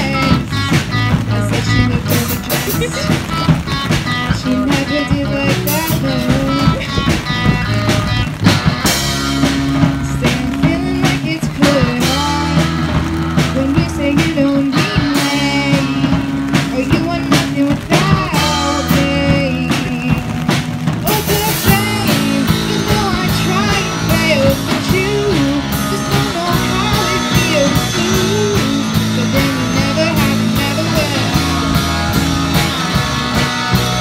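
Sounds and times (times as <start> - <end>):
female lead vocal: 0.0 - 3.6, 4.2 - 7.4, 9.8 - 31.5
bass guitar: 0.0 - 34.0
drum kit: 0.0 - 34.0
electric guitar: 0.0 - 34.0.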